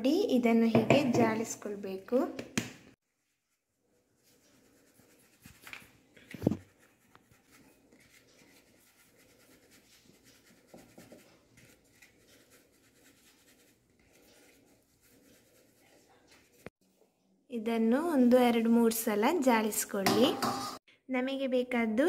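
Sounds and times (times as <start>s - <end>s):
flour shaken through sieve: 3.2s - 16.7s.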